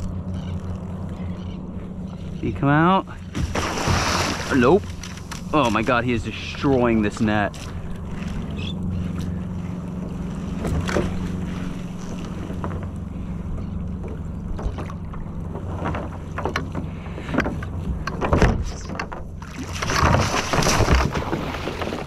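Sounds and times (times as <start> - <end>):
motor humming low: 0.0 - 22.0
water splashing sharply: 3.4 - 4.8.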